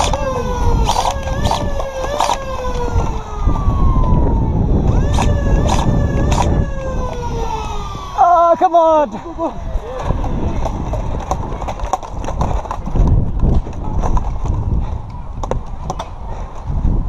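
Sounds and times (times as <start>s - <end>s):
sharp clicks: 0.0s - 3.3s, 4.9s - 8.2s
siren wailing: 0.0s - 9.0s.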